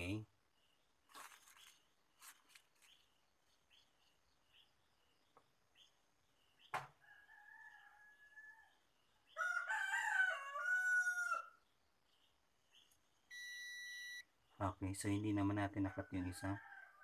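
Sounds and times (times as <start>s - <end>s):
bird chirps: 0.0s - 9.5s, 11.6s - 15.5s
rooster crowing: 7.0s - 11.6s, 15.9s - 17.0s
multimeter high beep: 13.3s - 14.3s.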